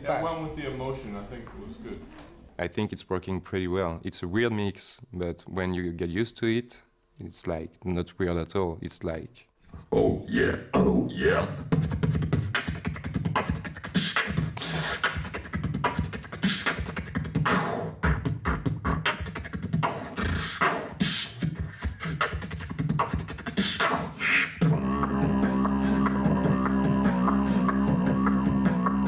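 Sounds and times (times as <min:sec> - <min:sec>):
beatboxing into a microphone: 0:09.9 - 0:29.0.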